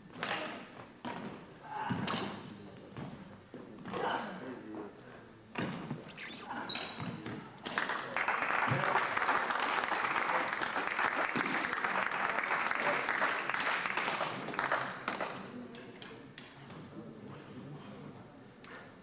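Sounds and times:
spectators applauding: 0:07.8 - 0:15.3.

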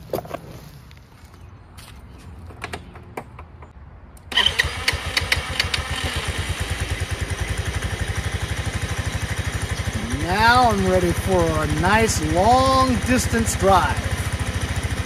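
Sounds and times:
scooter engine starting and idling: 0:04.3 - 0:15.0.

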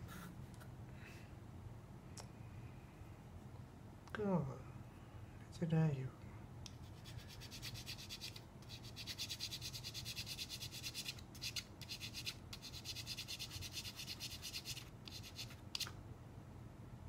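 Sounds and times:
hand file scraping: 0:06.9 - 0:15.9.

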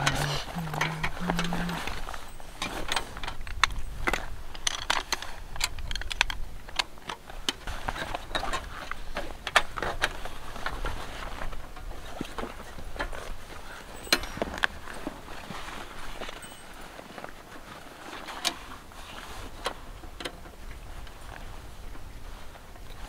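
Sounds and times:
folding furniture clicking and clacking: 0:00.0 - 0:21.4.

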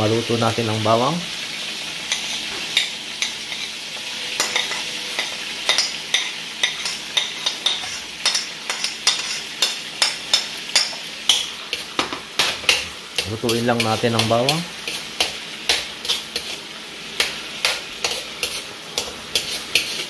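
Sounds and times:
oil sizzling in a wok: 0:00.0 - 0:20.0
garlic scraped into wok: 0:06.7 - 0:09.8, 0:12.6 - 0:20.0.

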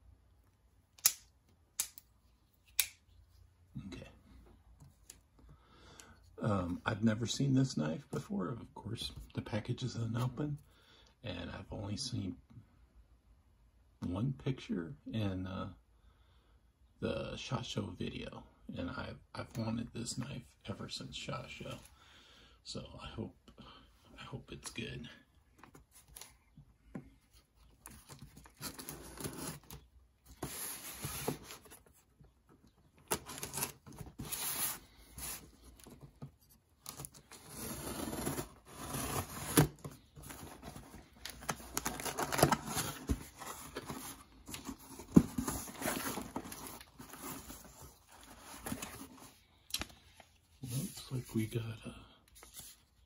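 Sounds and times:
cardboard flaps rustling: 0:33.0 - 0:49.4.

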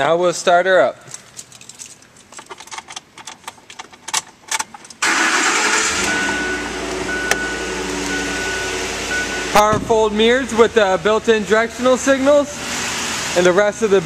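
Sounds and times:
faint clicks and rustles: 0:01.0 - 0:05.0
truck engine starting and idling: 0:05.0 - 0:14.0
short high beep: 0:06.0 - 0:09.7.

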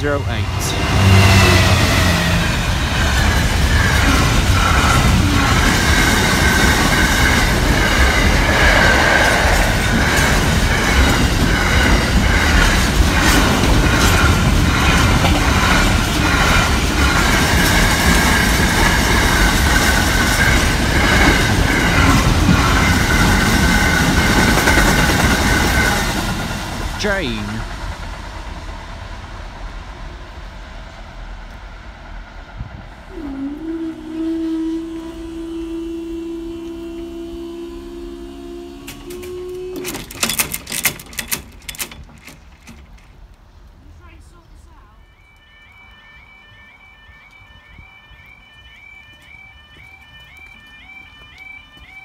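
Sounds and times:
freight train rumbling past: 0:00.0 - 0:50.1
wheels clattering over rail joints: 0:10.2 - 0:27.0, 0:38.8 - 0:43.5.

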